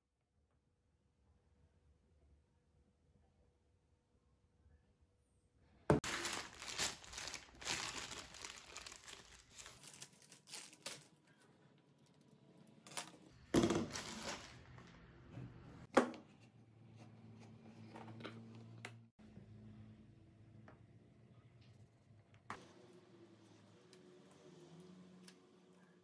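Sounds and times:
plastic packaging crinkling: 6.0 - 11.5, 12.8 - 14.8.

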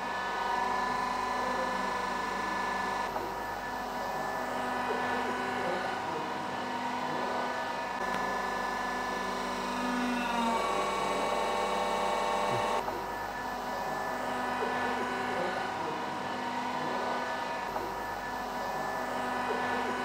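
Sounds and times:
hydraulic press whining: 8.0 - 13.0.

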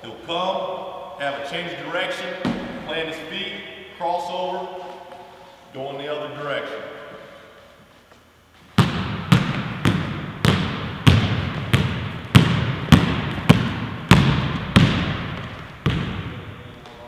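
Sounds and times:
basketballs bouncing on hardwood floor: 8.8 - 17.0.

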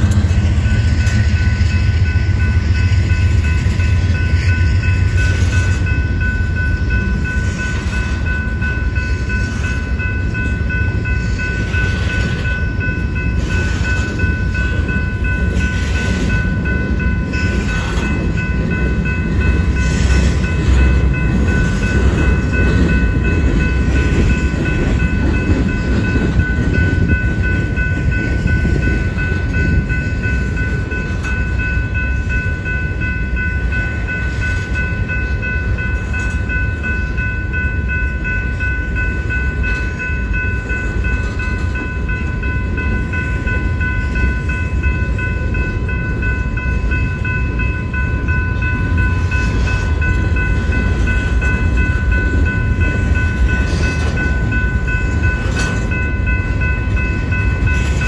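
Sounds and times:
crossing bell ringing: 0.0 - 58.0
train wheels rumbling on rails: 0.0 - 58.0.

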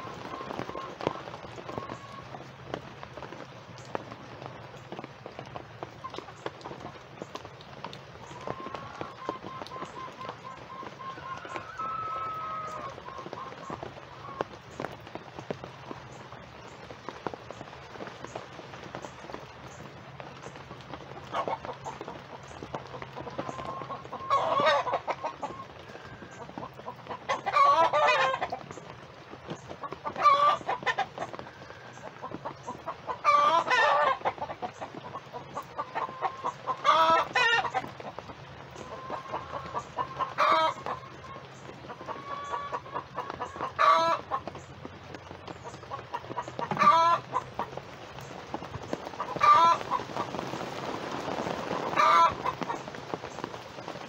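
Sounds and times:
chicken calling loudly: 8.3 - 13.6, 23.5 - 26.4, 42.0 - 44.4, 46.6 - 47.5, 49.2 - 50.0, 51.8 - 52.7
soft chicken clucking: 21.2 - 28.9, 29.5 - 48.3.

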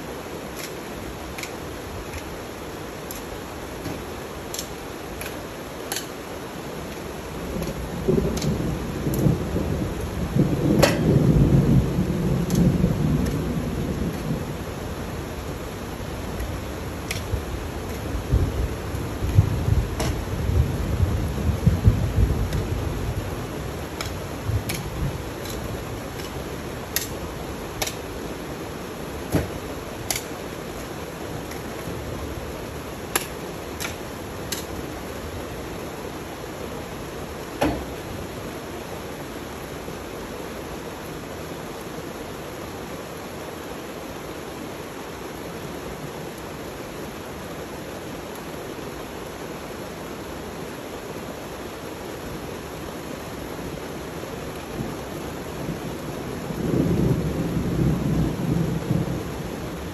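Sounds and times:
steady hiss: 0.0 - 59.9
hoe striking soil: 3.0 - 6.2, 10.8 - 11.0, 20.0 - 20.2, 24.0 - 27.2, 27.8 - 28.0, 29.3 - 30.3, 33.1 - 34.7.

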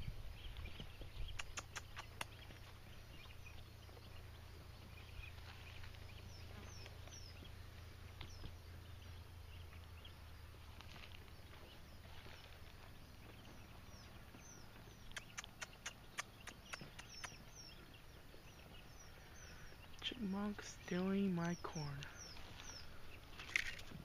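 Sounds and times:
small birds chirping: 0.0 - 24.0
steady low hum: 0.0 - 24.0
sharp clicks: 1.4 - 2.4, 15.1 - 17.4.

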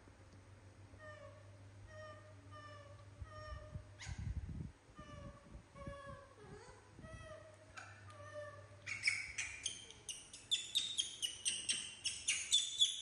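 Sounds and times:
macaque high-pitched squeaks: 4.0 - 4.3, 7.8 - 13.0.

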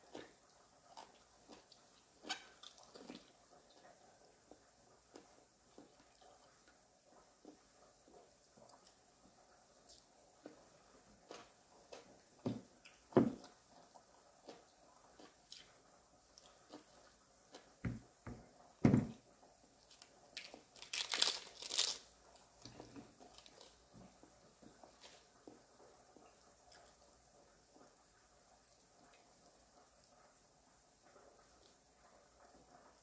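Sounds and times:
crunching and chewing: 0.0 - 9.0, 9.8 - 17.8, 19.8 - 27.2
soft thumps: 17.8 - 19.2.

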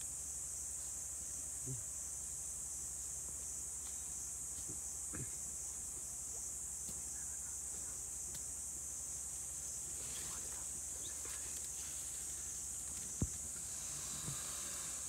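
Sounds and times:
high-pitched insect drone: 5.0 - 15.0
faint low thuds: 12.8 - 14.5.

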